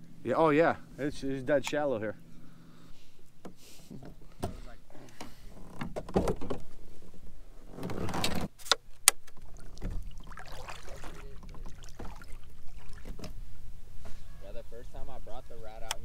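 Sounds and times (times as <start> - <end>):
kayak paddle splashing water: 9.2 - 13.6.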